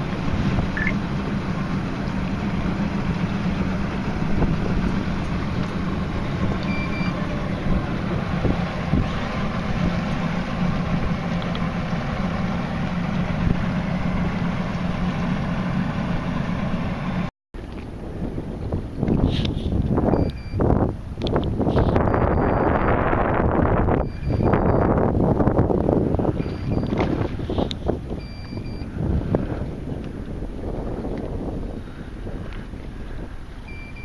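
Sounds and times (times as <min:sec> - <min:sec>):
outboard motors droning: 0:00.0 - 0:34.0
short high beep: 0:00.8 - 0:01.0, 0:06.7 - 0:07.2, 0:22.0 - 0:23.0, 0:24.0 - 0:24.9, 0:28.2 - 0:28.9, 0:33.7 - 0:34.0.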